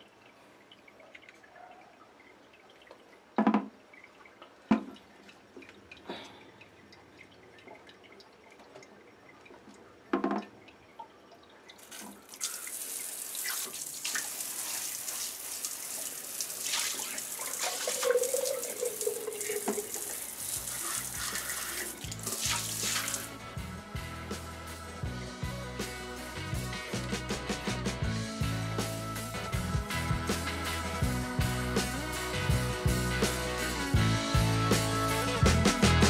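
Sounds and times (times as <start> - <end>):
bidet sprayer spraying water: 12.7 - 23.4.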